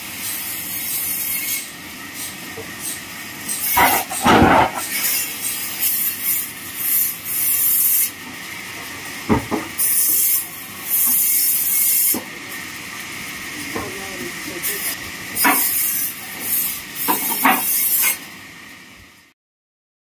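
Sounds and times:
wood and metal knocks: 0:03.8 - 0:04.9, 0:09.3 - 0:09.7
heavy log thudding onto steel: 0:03.8 - 0:05.0.

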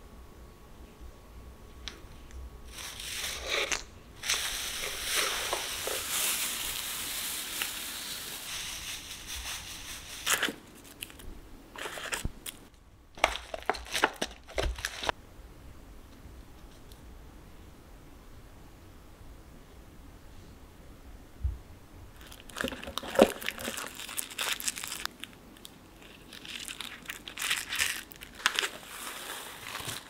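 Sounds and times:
hand rummaging crinkly crackles: 0:02.7 - 0:11.2, 0:11.8 - 0:12.6, 0:13.2 - 0:15.1, 0:22.2 - 0:30.0
crinkle paper rustling: 0:02.7 - 0:15.2, 0:22.2 - 0:30.0.

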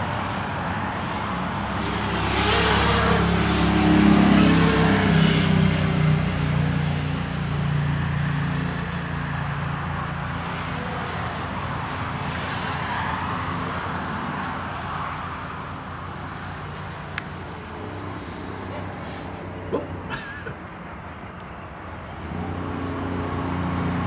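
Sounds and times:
low engine-like hum: 0:00.6 - 0:12.6
quadcopter propellers whining: 0:00.8 - 0:14.7.

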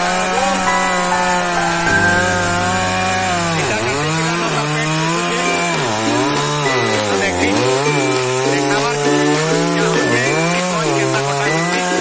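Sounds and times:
chainsaw cutting wood: 0:00.0 - 0:00.8, 0:02.9 - 0:12.0.

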